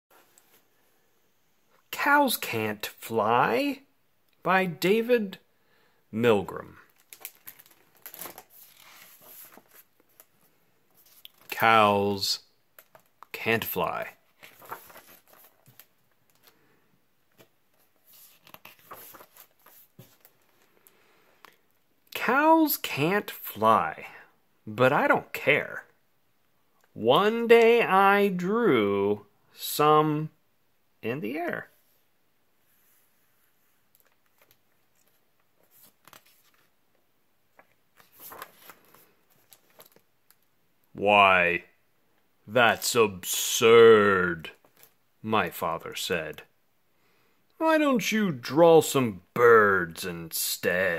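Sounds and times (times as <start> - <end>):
book pages rustling: 6.9 - 11.6, 12.7 - 16.6, 17.3 - 21.0, 32.6 - 40.5, 44.6 - 45.0.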